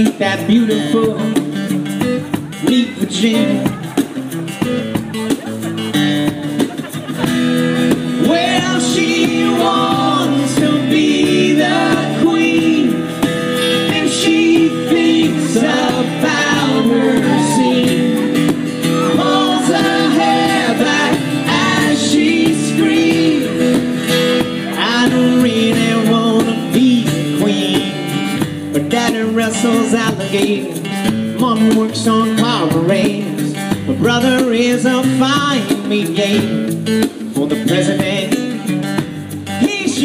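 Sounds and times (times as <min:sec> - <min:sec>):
acoustic guitar: 0:00.0 - 0:40.0
hand drum beat: 0:00.0 - 0:40.0
person singing: 0:02.5 - 0:04.1, 0:06.5 - 0:36.6.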